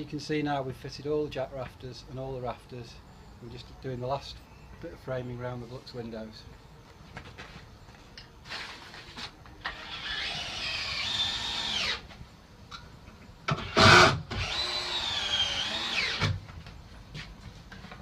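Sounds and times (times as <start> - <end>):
power drill motor whine: 9.6 - 12.1, 13.5 - 16.4.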